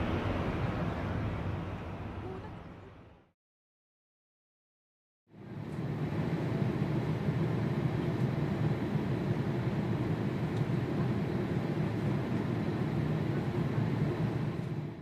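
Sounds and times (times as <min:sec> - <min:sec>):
jet engines rumbling: 0:00.0 - 0:03.3, 0:05.3 - 0:15.0.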